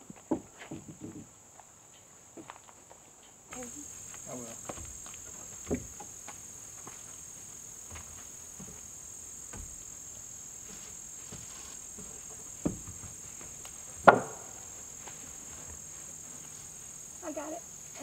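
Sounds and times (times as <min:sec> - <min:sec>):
high-pitched insect drone: 0:03.5 - 0:18.0
board knocking against timber frame: 0:04.6 - 0:06.4, 0:10.6 - 0:14.7.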